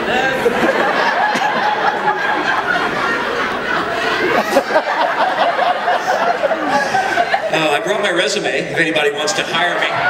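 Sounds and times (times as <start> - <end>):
large audience laughing: 0.0 - 8.2.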